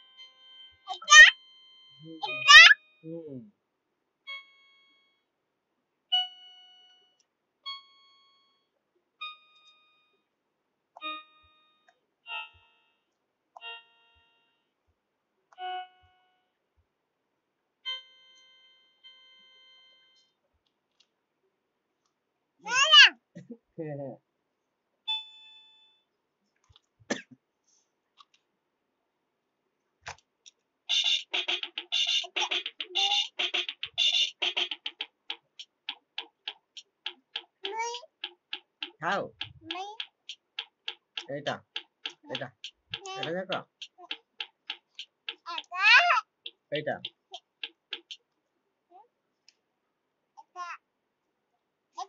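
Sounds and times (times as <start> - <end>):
toy keyboard notes: 0.0 - 3.2, 6.1 - 7.1, 7.7 - 8.3, 11.0 - 12.9, 13.6 - 14.6, 15.5 - 16.5, 17.9 - 20.3, 30.9 - 48.2.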